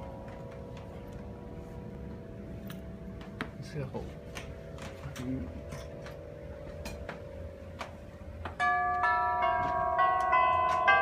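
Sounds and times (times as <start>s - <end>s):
tubular chimes ringing: 0.0s - 11.0s.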